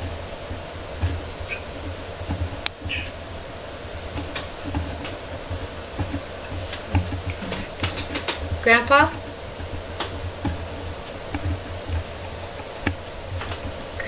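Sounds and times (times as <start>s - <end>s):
low background hum: 0.0s - 14.0s
light clicks and ticks: 4.0s - 14.0s.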